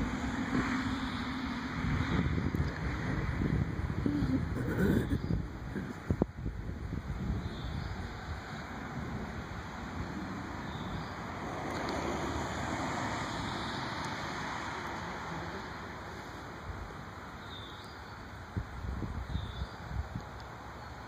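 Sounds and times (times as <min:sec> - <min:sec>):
gusty wind on microphone: 0:00.0 - 0:14.7, 0:18.4 - 0:20.4
trees rustling: 0:00.0 - 0:21.0.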